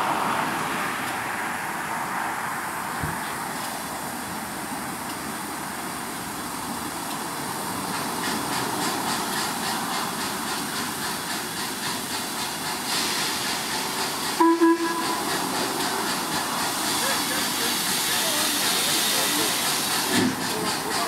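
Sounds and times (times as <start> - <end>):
steam hissing: 3.6 - 21.0
steam locomotive chuffing: 5.9 - 21.0
deep steam whistle: 14.4 - 15.3.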